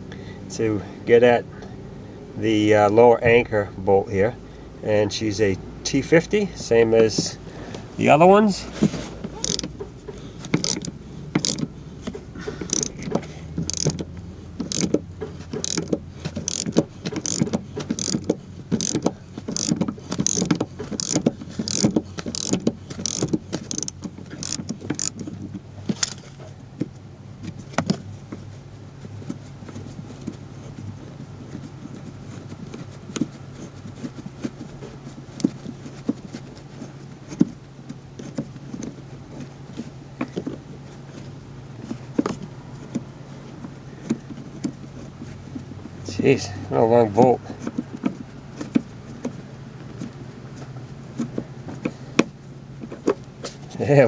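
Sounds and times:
socket ratchet clicking: 9.4 - 9.8, 10.5 - 11.7, 12.6 - 25.2.

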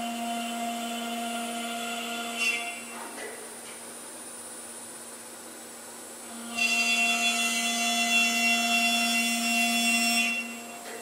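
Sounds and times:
lathe spindle whining: 0.0 - 3.0, 6.3 - 11.0.

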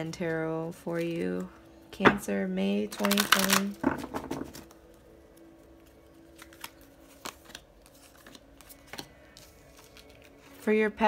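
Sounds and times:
faint steady hum: 0.0 - 11.0
cards shuffling clicks: 6.4 - 10.6.

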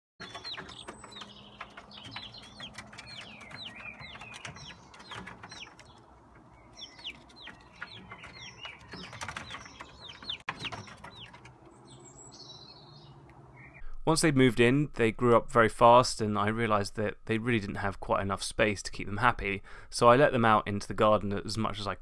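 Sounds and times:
chicks peeping: 0.2 - 13.8.

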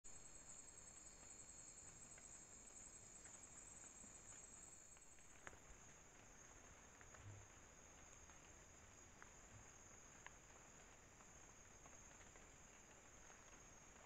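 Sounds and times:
night insects droning: 0.1 - 14.0.

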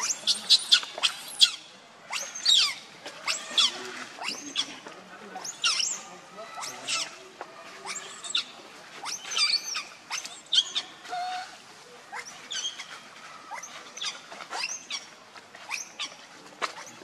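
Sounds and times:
young monkey squealing: 0.0 - 4.8, 5.4 - 7.2, 7.8 - 15.1, 15.7 - 17.0.

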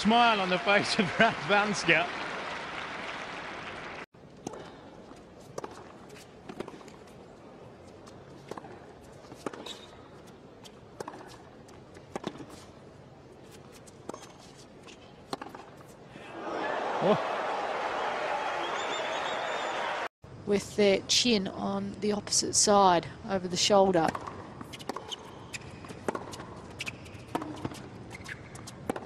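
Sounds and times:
tennis racket striking ball: 11.0 - 11.4, 15.3 - 15.8, 24.1 - 29.0.

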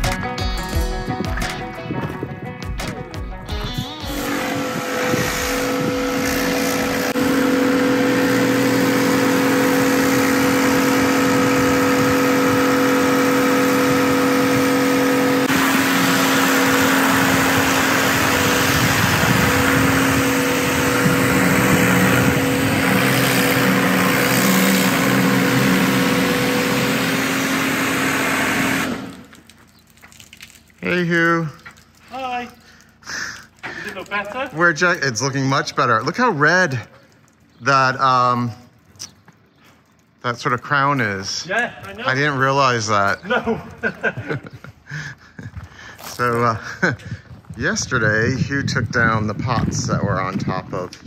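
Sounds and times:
pressure washer pump hum: 3.6 - 47.3
high-pressure water jet hissing: 4.0 - 29.4.

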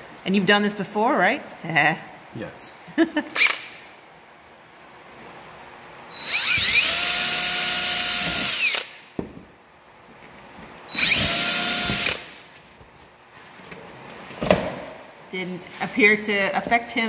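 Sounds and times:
cordless drill whining: 6.1 - 9.0, 10.9 - 12.3.

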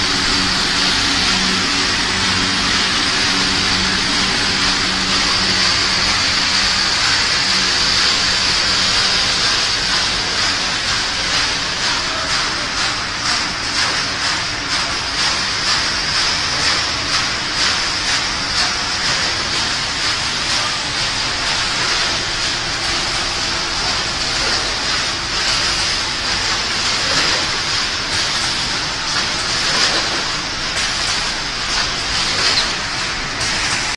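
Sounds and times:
factory machinery din: 0.0 - 33.9.

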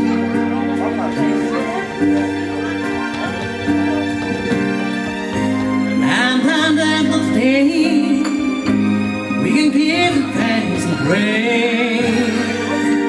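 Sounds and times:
held backing chords: 0.0 - 13.0
man singing a ballad: 6.0 - 13.0.

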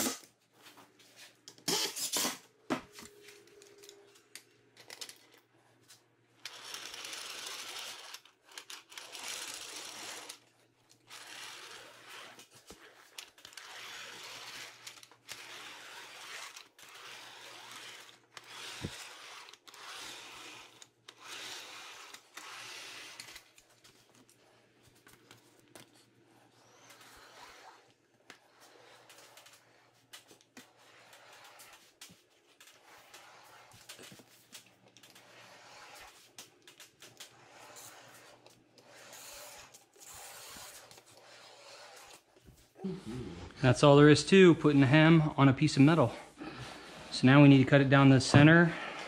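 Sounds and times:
cordless drill driving screw: 6.4 - 23.6
hemming tool scraping sheet metal: 6.5 - 23.6, 35.0 - 42.4.

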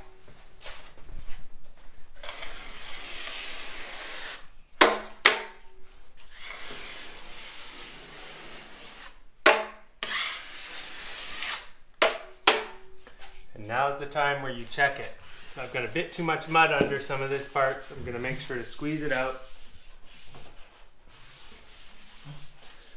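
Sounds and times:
drywall knife scraping: 2.2 - 4.5, 6.3 - 12.6, 15.0 - 22.9.

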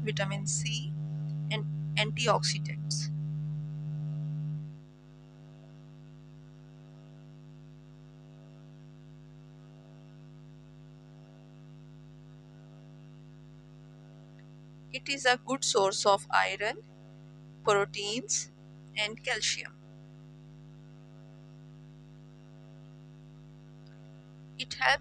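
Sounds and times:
buzzy electrical hum: 0.0 - 25.0.

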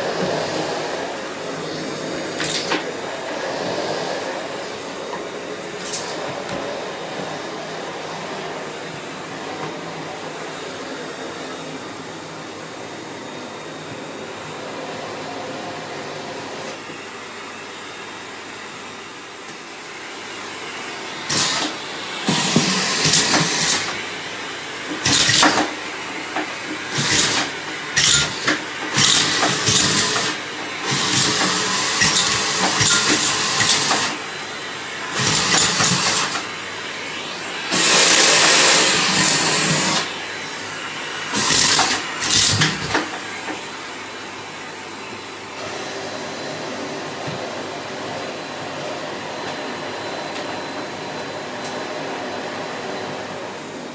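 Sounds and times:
vacuum cleaner running: 0.0 - 53.9.

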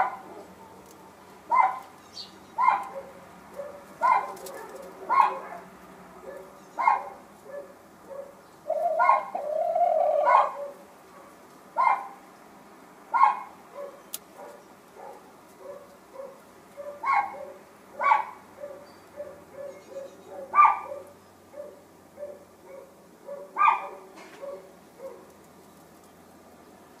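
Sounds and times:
hen drawn-out call: 8.7 - 10.8.

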